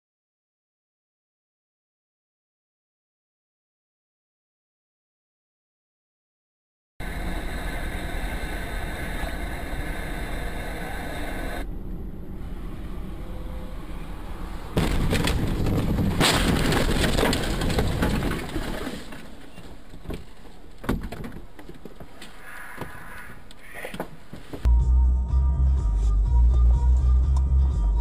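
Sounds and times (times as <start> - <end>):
car cabin road noise: 7.0 - 24.7
scraping and rushing noise: 14.0 - 20.4
car crash: 14.3 - 22.0.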